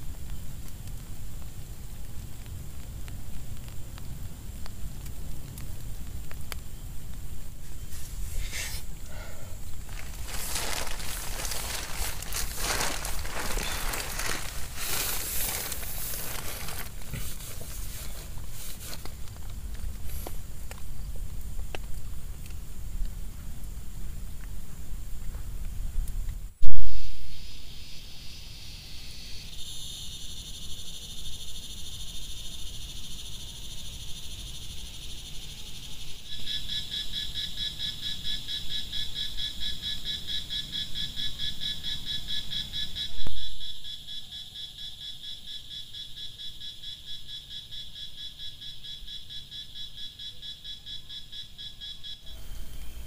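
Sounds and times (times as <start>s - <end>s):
faint low rumble: 0.0s - 27.8s.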